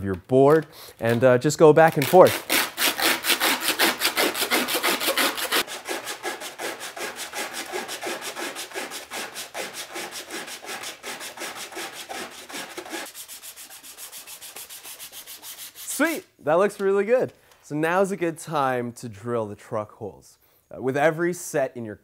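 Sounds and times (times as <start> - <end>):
sandpaper rubbing wood edge: 2.0 - 16.2.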